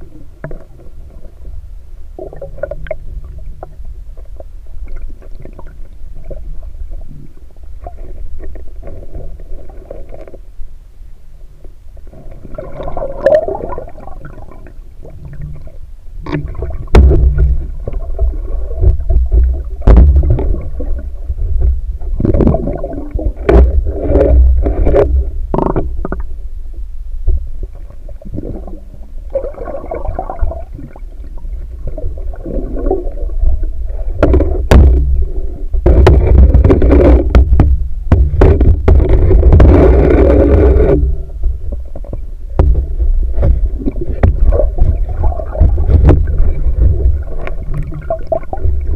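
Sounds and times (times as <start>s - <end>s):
underwater rumble and gurgling: 0.0s - 48.9s
sharp underwater clicks and knocks: 15.2s - 26.3s, 33.9s - 48.9s.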